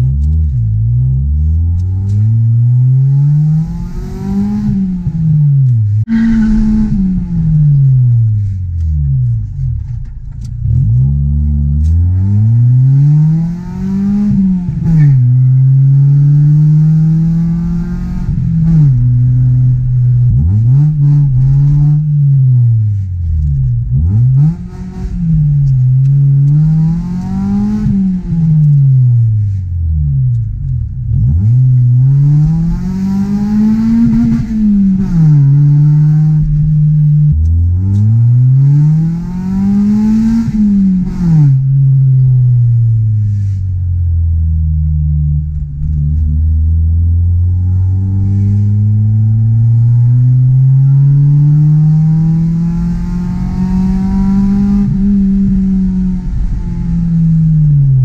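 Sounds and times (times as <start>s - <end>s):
car engine revving through gears: 0.0s - 43.6s, 44.2s - 58.0s.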